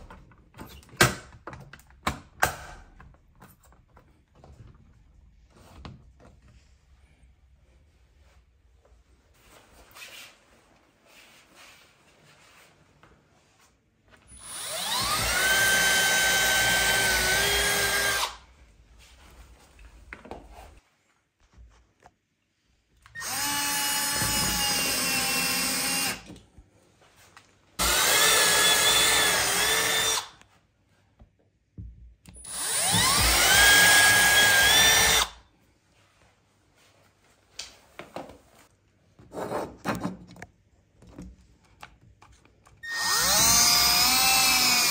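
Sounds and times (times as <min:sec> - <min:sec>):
cordless drill driving screws: 0:14.3 - 0:18.4, 0:23.1 - 0:26.3, 0:27.8 - 0:30.4, 0:32.4 - 0:35.4, 0:42.8 - 0:44.9.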